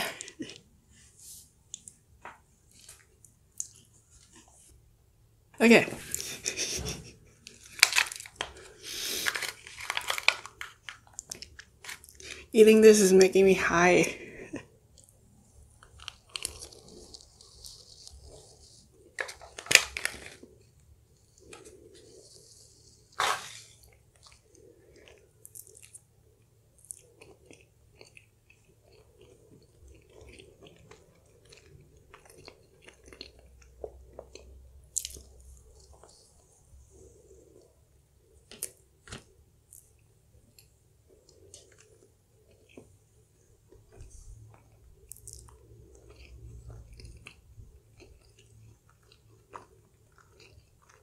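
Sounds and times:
wet chewing and lip smacks: 0:43.7 - 0:51.0.

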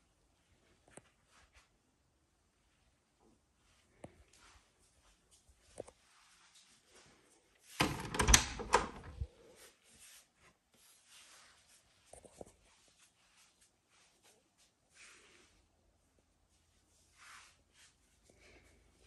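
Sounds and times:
door latch clicks and knocks: 0:07.8 - 0:09.2.

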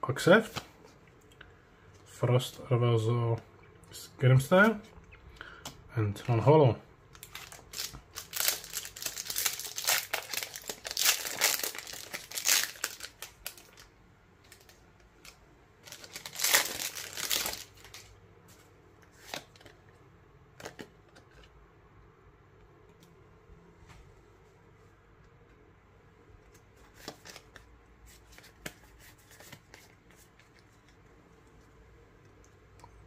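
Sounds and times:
foil wrapper crinkling and tearing: 0:07.2 - 0:13.9, 0:14.5 - 0:18.1.

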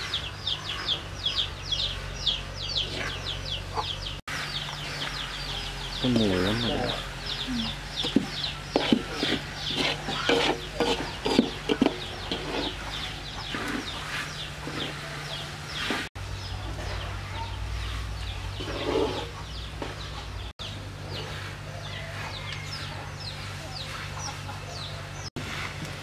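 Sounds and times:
chickens clucking: 0:00.0 - 0:26.0
spatula scraping metal wok: 0:08.0 - 0:16.1, 0:17.8 - 0:20.0.

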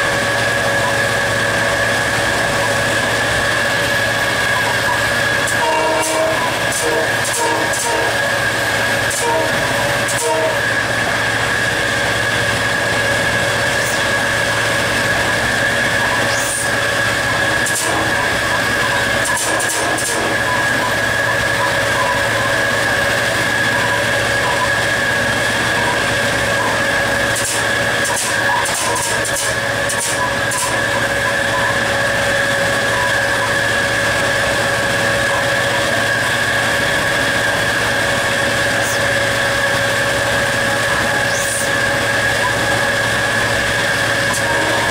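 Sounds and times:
high whine: 0:00.0 - 0:44.9
locomotive engine and rail noise: 0:00.0 - 0:44.9
train rumbling: 0:00.0 - 0:44.9
track clicks: 0:13.7 - 0:34.0.

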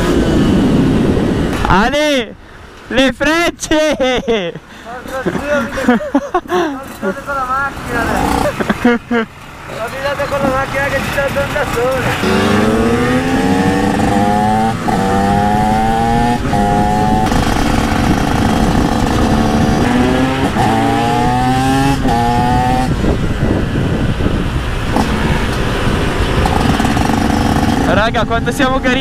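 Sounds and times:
motorcycle engine accelerating through gears: 0:08.0 - 0:08.7, 0:11.7 - 0:29.0.

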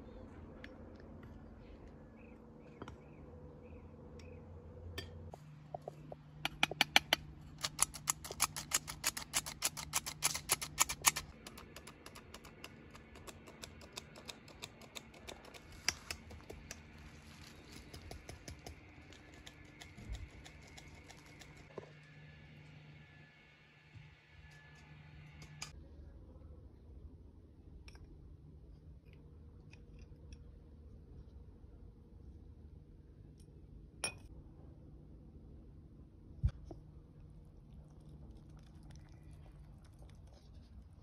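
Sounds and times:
spoon clinking in glass: 0:34.0 - 0:34.3.

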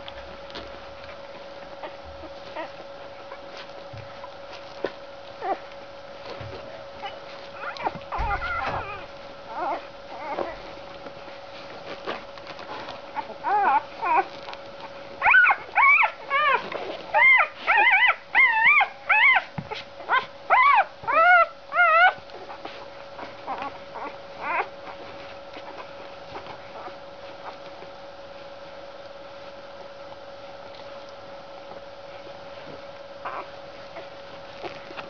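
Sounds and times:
faint steady hum: 0:00.0 - 0:35.0
puppies squealing and whimpering: 0:00.6 - 0:10.9, 0:12.0 - 0:14.5, 0:15.2 - 0:27.8, 0:33.2 - 0:35.0.

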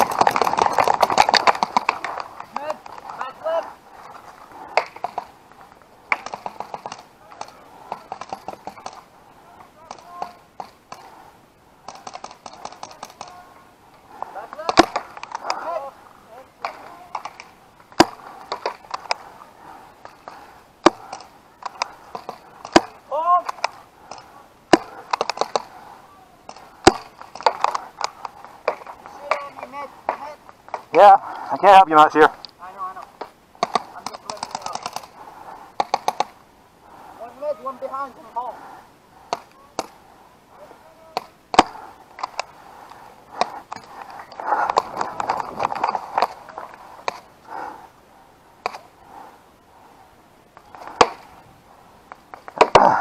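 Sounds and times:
paintballs striking: 0:00.0 - 0:03.4, 0:04.6 - 0:05.4, 0:06.1 - 0:11.2, 0:11.8 - 0:13.4, 0:14.5 - 0:15.7, 0:16.6 - 0:19.3, 0:20.0 - 0:25.8, 0:26.4 - 0:31.0, 0:33.1 - 0:35.2, 0:35.8 - 0:36.4, 0:39.2 - 0:40.0, 0:41.1 - 0:42.6, 0:43.3 - 0:47.3, 0:48.6 - 0:48.9, 0:50.6 - 0:51.4, 0:52.1 - 0:53.0
paintball markers firing: 0:04.7 - 0:05.3, 0:06.1 - 0:09.1, 0:11.8 - 0:13.4, 0:20.0 - 0:25.8, 0:26.5 - 0:30.9, 0:33.2 - 0:35.2, 0:35.8 - 0:36.4, 0:41.1 - 0:42.6, 0:50.7 - 0:51.3.

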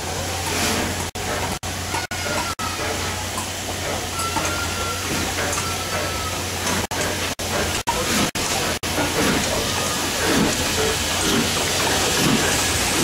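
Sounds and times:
steam locomotive passing: 0:00.0 - 0:13.0
hiss of steam: 0:02.7 - 0:13.0.

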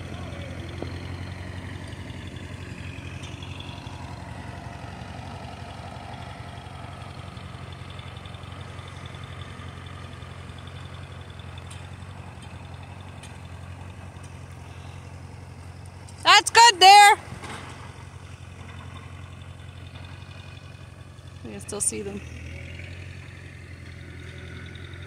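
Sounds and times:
tractor engine running: 0:00.0 - 0:25.0.

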